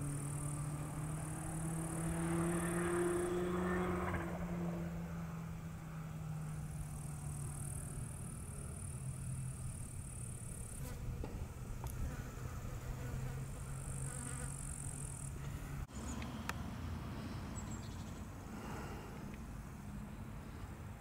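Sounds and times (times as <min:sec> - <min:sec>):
insects buzzing: 0:00.0 - 0:16.2.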